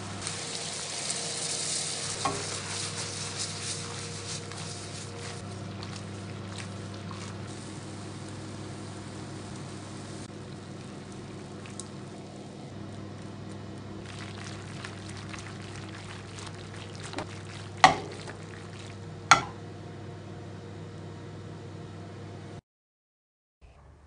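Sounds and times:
pasta sizzling in a frying pan: 0:00.0 - 0:19.6
steady low hum: 0:00.0 - 0:22.6.

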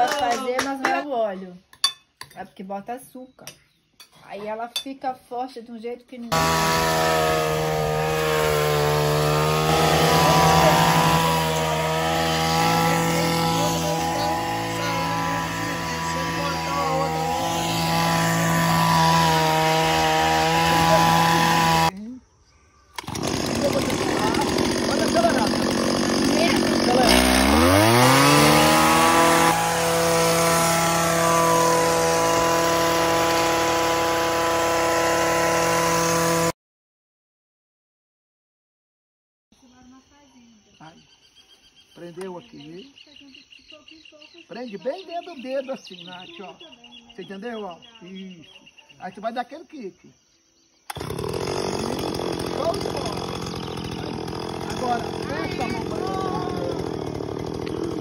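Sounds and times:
brush cutter engine cutting grass: 0:06.3 - 0:22.0, 0:23.0 - 0:36.6, 0:50.9 - 0:58.0.

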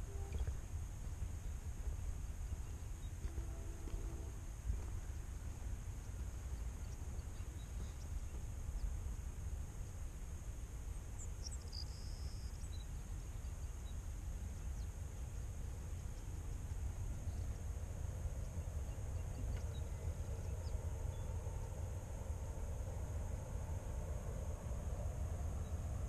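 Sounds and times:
high-pitched hiss: 0:00.0 - 0:26.0
wind rumbling on microphone: 0:00.0 - 0:26.0
bird chirps: 0:11.2 - 0:14.0, 0:18.4 - 0:21.4.

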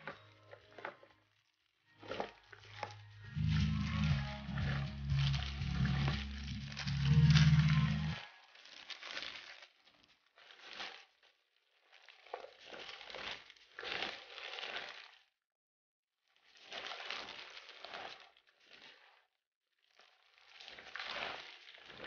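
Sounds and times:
gloved hands rustling herbs in bowl: 0:02.0 - 0:11.2, 0:11.8 - 0:15.2
low drone: 0:02.8 - 0:08.2.

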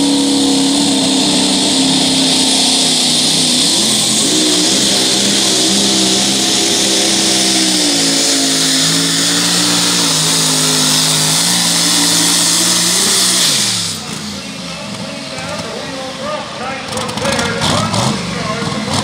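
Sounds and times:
loud high hiss: 0:00.0 - 0:14.4
truck engine at full throttle: 0:00.0 - 0:19.0.

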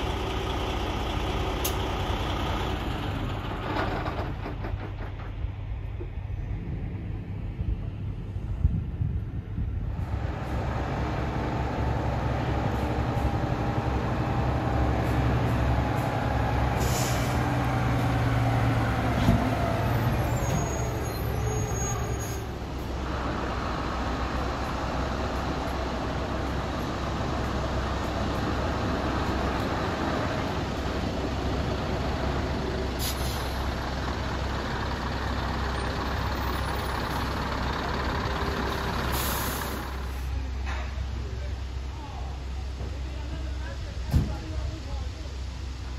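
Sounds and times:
heavy trucks passing: 0:00.0 - 0:45.9
air brakes hissing: 0:16.7 - 0:17.6, 0:19.8 - 0:22.6, 0:32.8 - 0:33.8, 0:38.8 - 0:40.4.

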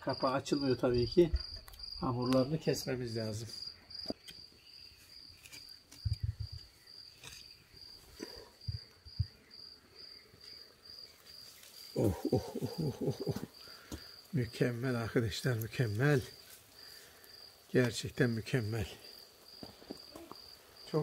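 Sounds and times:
person speaking: 0:00.0 - 0:01.4, 0:12.0 - 0:13.5, 0:14.4 - 0:16.4, 0:17.7 - 0:19.0
crickets chirping: 0:00.0 - 0:21.0.

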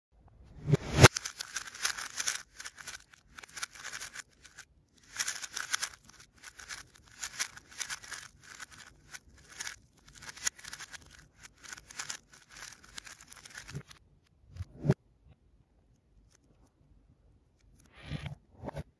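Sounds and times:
speed cube layers clicking: 0:00.7 - 0:14.0.

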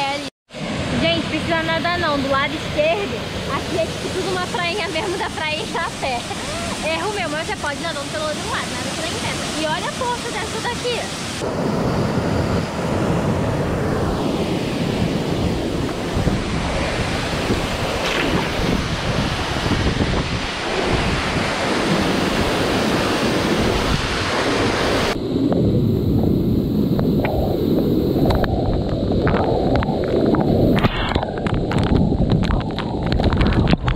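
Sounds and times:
waterfall crashing into pool: 0:01.3 - 0:11.6, 0:14.3 - 0:25.2.

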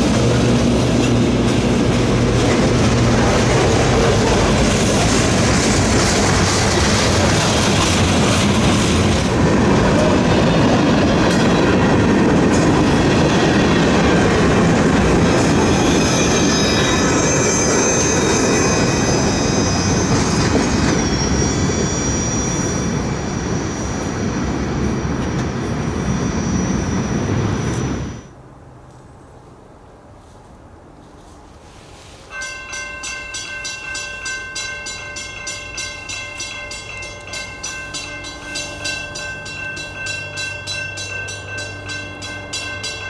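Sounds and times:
freight train wheels rumbling: 0:00.0 - 0:28.4, 0:31.0 - 0:43.0
high wheel squeal: 0:15.5 - 0:28.3.

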